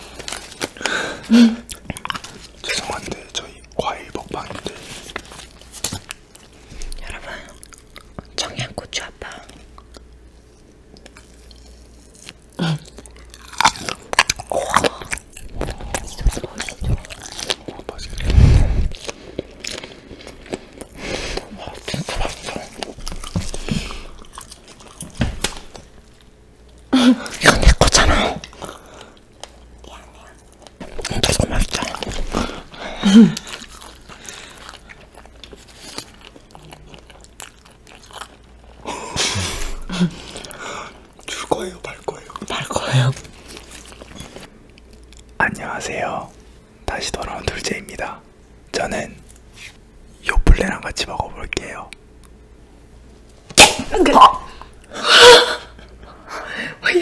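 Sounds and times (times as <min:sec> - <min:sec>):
wet biting and chewing: 0:01.6 - 0:03.3, 0:09.5 - 0:32.7, 0:33.3 - 0:38.9.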